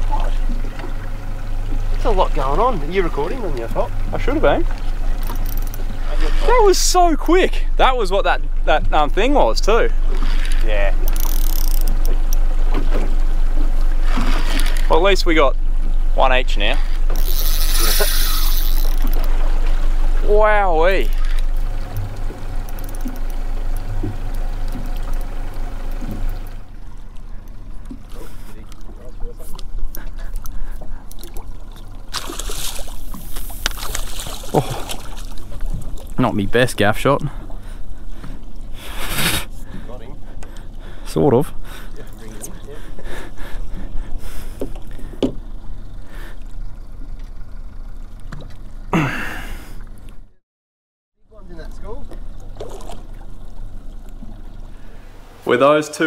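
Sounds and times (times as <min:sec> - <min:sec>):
water noise: 0:00.0 - 0:50.3, 0:51.3 - 0:56.0
low steady hum: 0:00.0 - 0:50.4, 0:51.2 - 0:56.0
wind: 0:00.0 - 0:50.4, 0:51.2 - 0:56.0
water splashing against boat hull: 0:11.9 - 0:15.2, 0:16.9 - 0:36.5, 0:51.6 - 0:54.8
falling gasp-like voice: 0:48.9 - 0:49.7.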